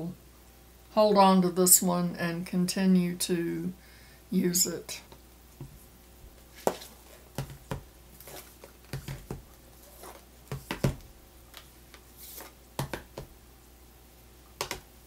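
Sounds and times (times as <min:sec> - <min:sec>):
palettes tapping and clacking: 0:06.7 - 0:09.4, 0:12.8 - 0:13.3.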